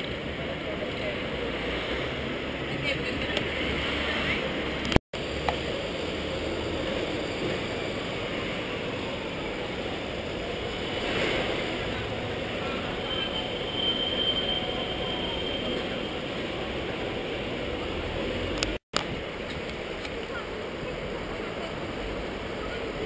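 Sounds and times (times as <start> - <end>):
city traffic rumble: 0.0 - 23.0
faint high squeal: 12.9 - 16.4.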